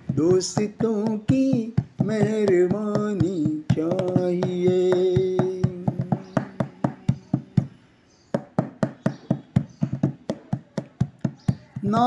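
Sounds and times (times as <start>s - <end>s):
drum strokes: 0.0s - 7.8s.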